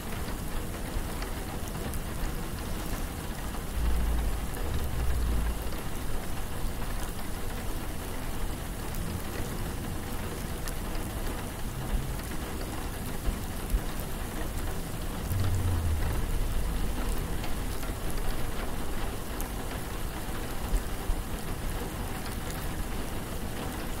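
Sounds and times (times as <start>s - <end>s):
rain pattering on hard surfaces: 0.0s - 24.0s
deep low rumble: 2.9s - 7.9s, 14.9s - 19.5s.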